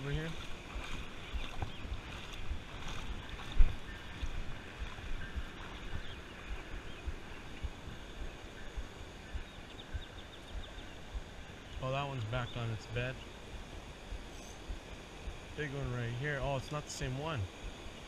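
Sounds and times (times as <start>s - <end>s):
water sloshing from wading: 0.0s - 15.4s.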